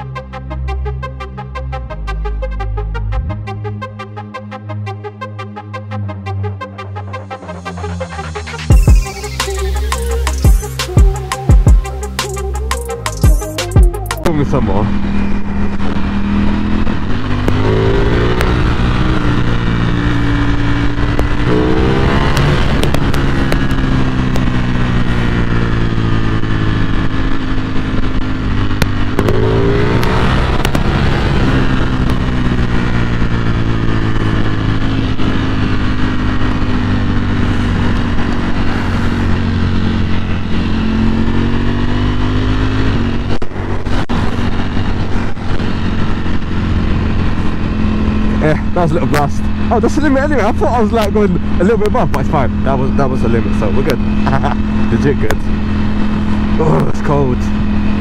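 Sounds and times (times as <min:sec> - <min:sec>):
motorcycle engine revving: 0:07.2 - 0:58.0
wind and road noise: 0:14.2 - 0:58.0
exhaust pops: 0:28.6 - 0:31.1.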